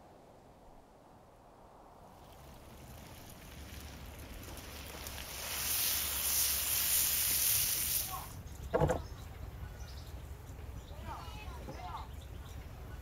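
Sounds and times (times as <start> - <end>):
fried food sizzling: 2.1 - 8.4.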